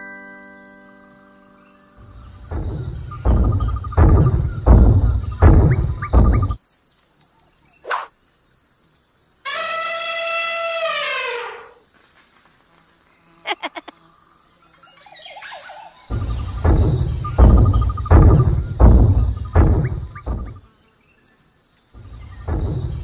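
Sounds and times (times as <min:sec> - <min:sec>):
elephant trumpeting: 0:09.5 - 0:11.7.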